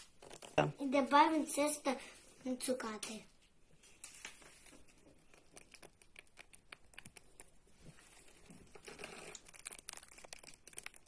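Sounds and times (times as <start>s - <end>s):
plastic packet crinkling: 8.2s - 11.0s.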